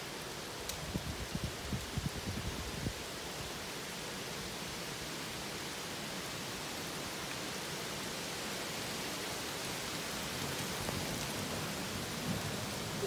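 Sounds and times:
rain hissing: 0.0s - 13.0s
low rumble of thunder: 10.3s - 13.0s.

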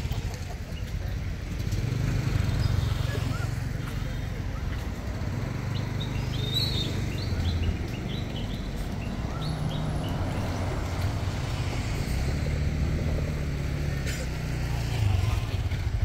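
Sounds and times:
bird chirping: 5.5s - 11.8s.

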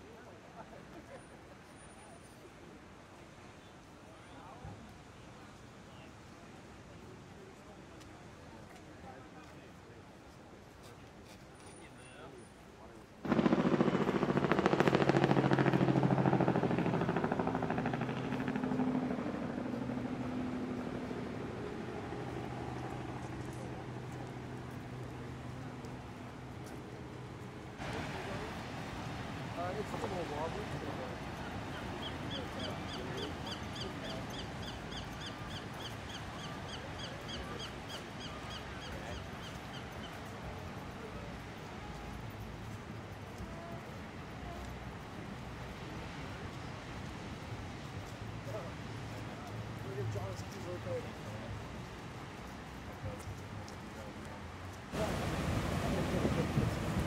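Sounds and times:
steady noise: 13.2s - 32.8s, 54.9s - 57.0s.

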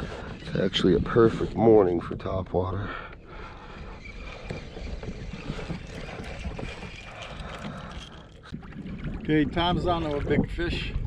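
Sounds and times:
water against kayak hull: 3.0s - 11.0s
wind on microphone: 3.9s - 11.0s.

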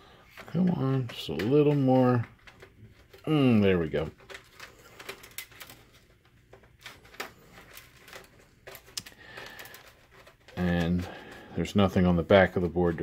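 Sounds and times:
small clicks and taps of handling: 4.0s - 11.1s.

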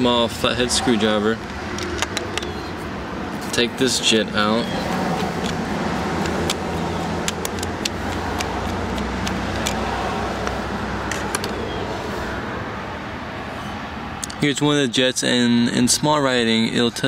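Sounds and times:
screwdriver metallic clicks: 1.4s - 2.6s, 5.1s - 9.8s.

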